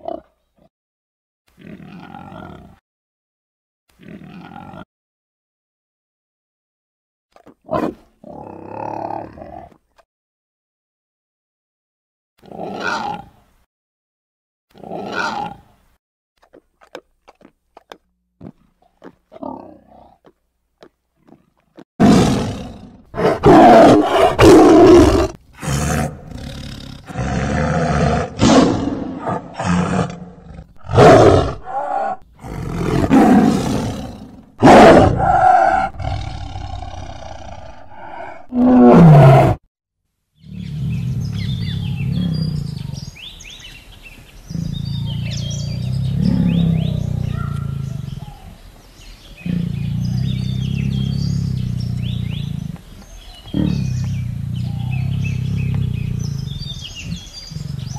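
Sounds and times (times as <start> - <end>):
tiger growling and roaring: 7.7 - 9.8, 18.8 - 20.3, 21.2 - 39.6, 40.4 - 43.8, 44.4 - 48.6, 49.2 - 57.9
faint bird chirps: 40.4 - 57.9.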